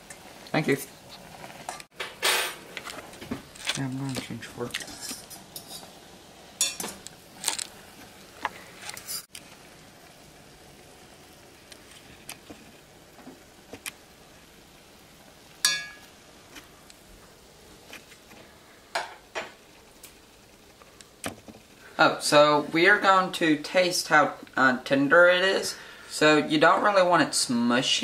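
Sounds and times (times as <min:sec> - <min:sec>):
steady low hiss: 0:00.0 - 0:28.0
metal fork clinking on pot: 0:15.6 - 0:16.1.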